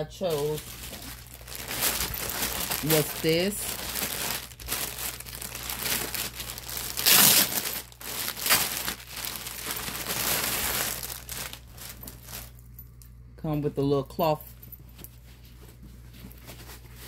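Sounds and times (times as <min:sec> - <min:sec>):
plastic bag crinkling: 0:00.0 - 0:12.7.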